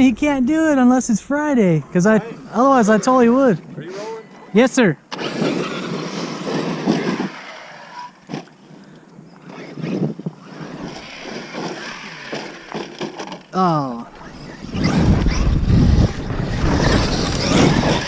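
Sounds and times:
rc truck motors and tyres: 0:05.1 - 0:18.0.

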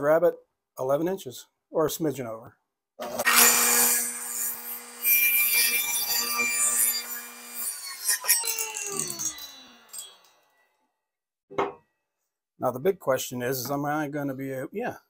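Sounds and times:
saw blade winding down whine: 0:03.0 - 0:10.5
table saw cutting wood: 0:03.0 - 0:10.5.

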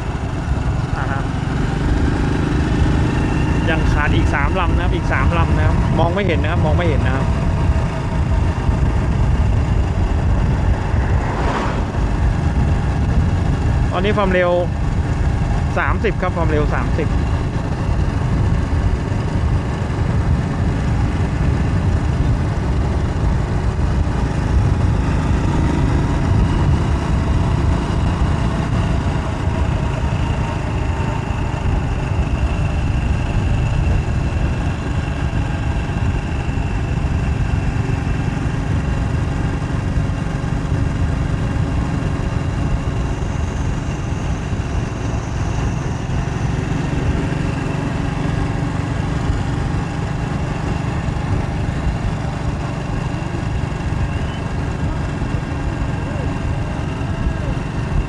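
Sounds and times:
wind buffeting microphone: 0:01.5 - 0:15.7.

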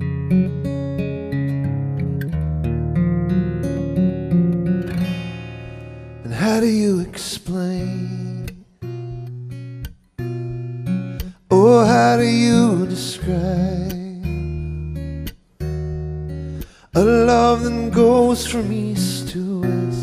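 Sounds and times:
acoustic guitar: 0:00.0 - 0:20.0
man singing: 0:06.2 - 0:08.7, 0:11.4 - 0:14.7, 0:16.8 - 0:20.0.

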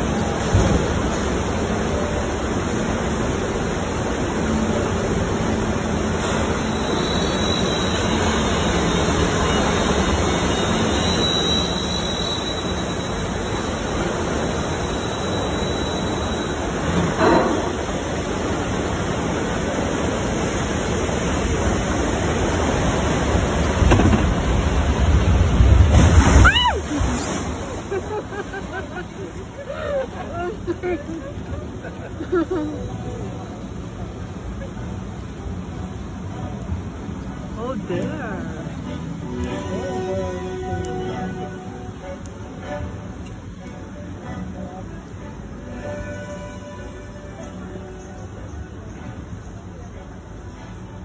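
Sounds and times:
spraying water rushing: 0:00.0 - 0:31.9.

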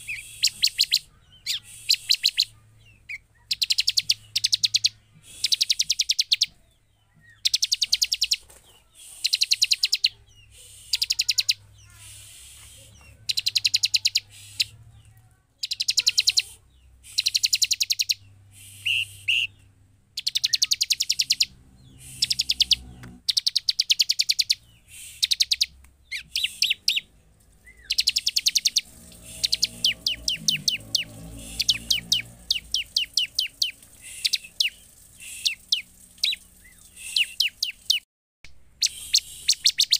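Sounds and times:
bird trilling: 0:09.2 - 0:14.7, 0:15.6 - 0:19.6, 0:20.2 - 0:38.0, 0:38.8 - 0:39.9.

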